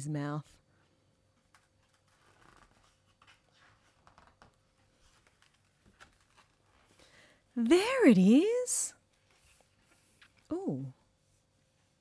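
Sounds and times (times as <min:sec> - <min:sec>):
paper pages rustling and turning: 0:01.3 - 0:07.0, 0:09.1 - 0:10.5.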